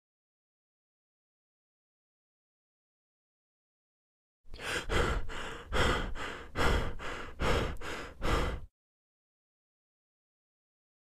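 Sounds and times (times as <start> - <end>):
person breathing heavily: 4.5 - 8.7.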